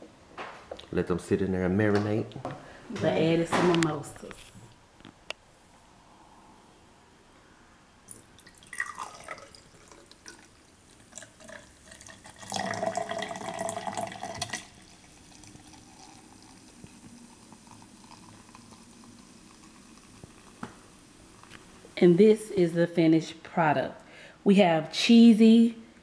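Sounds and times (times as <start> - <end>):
liquid pouring into a glass: 8.1 - 21.6.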